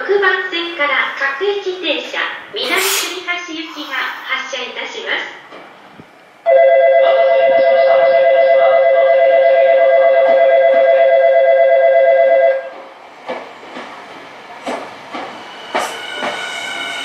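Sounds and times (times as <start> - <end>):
train rolling slowly: 5.3 - 6.8, 10.4 - 17.0
electric bell ringing: 6.5 - 12.7
train wheels clicking: 12.7 - 17.0.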